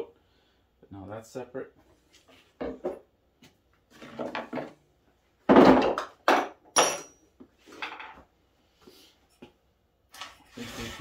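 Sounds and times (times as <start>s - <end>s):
metal tools clattering on wood: 5.5s - 8.2s.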